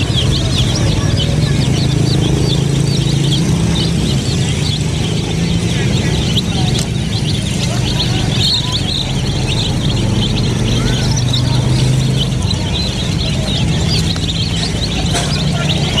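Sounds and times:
chicks peeping: 0.0 - 16.0.

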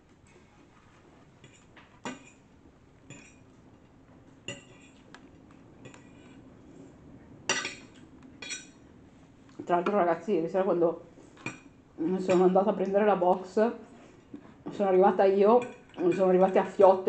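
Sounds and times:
fork clinking and scraping on plate: 3.1 - 3.4, 4.5 - 5.0, 7.5 - 8.8.

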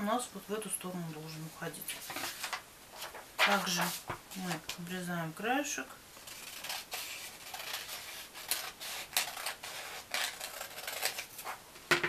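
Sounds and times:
paper rustling: 1.9 - 4.8
scissors snipping paper: 6.3 - 11.6.

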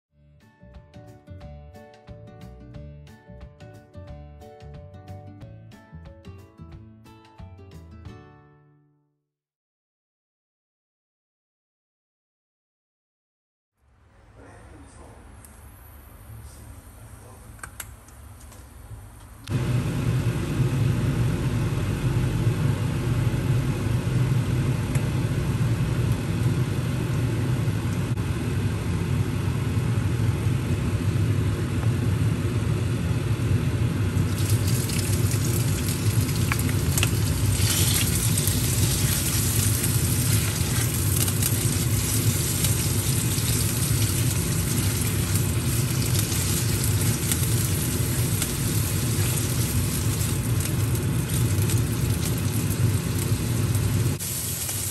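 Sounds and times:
low fan hum: 13.9 - 54.9
meat sizzling in hot oil: 34.2 - 54.9.

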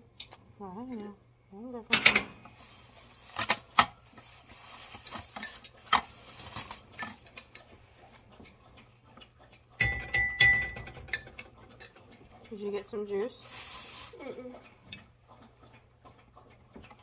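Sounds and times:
dishes and utensils clicking: 9.8 - 12.2.

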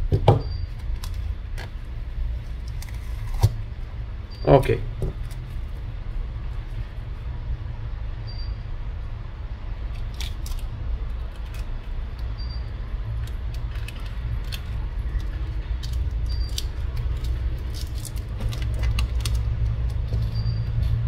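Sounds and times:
steady low hum: 0.0 - 21.0
faint high beep: 8.2 - 8.6, 12.4 - 12.7, 20.3 - 20.8.

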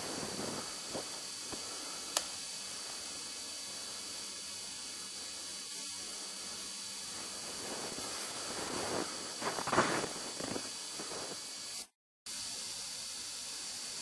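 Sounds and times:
crunching through snow: 0.0 - 1.2, 7.3 - 11.4
steady hiss: 0.0 - 14.0.

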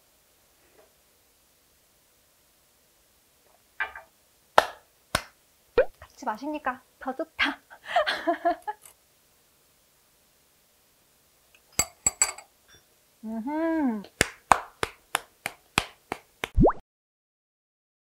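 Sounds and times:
woman humming mmm: 13.2 - 14.1.

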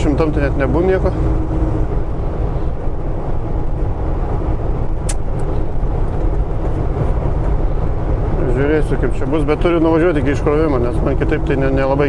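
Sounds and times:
truck diesel engine drone: 0.0 - 12.0
sharp click: 5.0 - 5.5.

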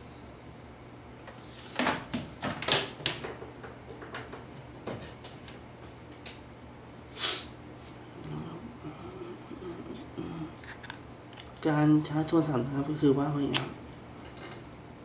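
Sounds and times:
faint steady hum: 0.0 - 15.0
small objects clicking and knocking: 10.6 - 11.7.

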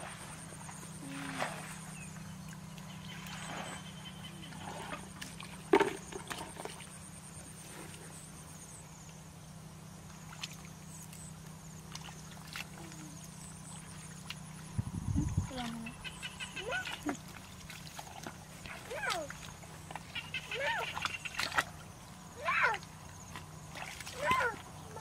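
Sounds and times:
hands splashing in muddy water: 20.8 - 21.9.

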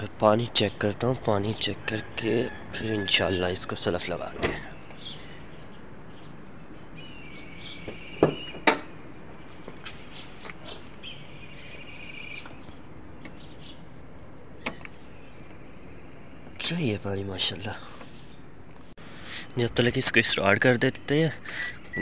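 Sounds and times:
birds chirping: 0.0 - 22.0
car bonnet clunking open: 4.3 - 4.7, 7.9 - 9.0, 14.6 - 15.0.

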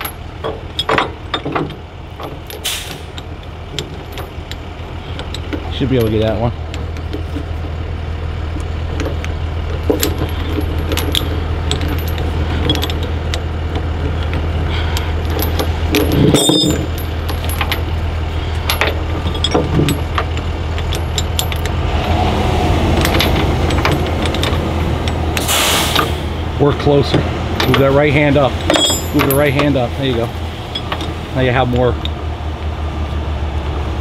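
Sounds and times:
chain links clinking and rattling: 0.0 - 22.2, 23.0 - 32.0.

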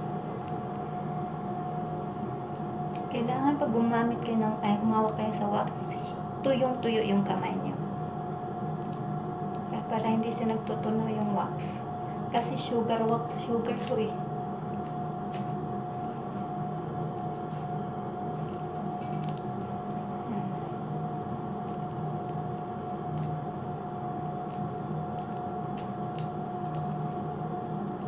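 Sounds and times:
sticky wax clicks and smacks: 0.0 - 1.6, 2.2 - 3.1, 8.7 - 9.8, 12.2 - 17.8, 18.4 - 20.1, 20.9 - 28.0
steady hum: 0.0 - 28.0.

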